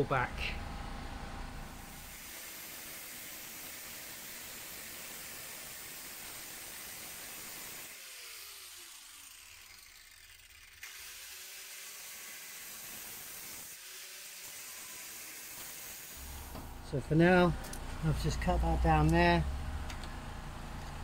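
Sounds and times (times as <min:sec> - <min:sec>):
angle grinder cutting sheet metal: 0:01.8 - 0:16.5.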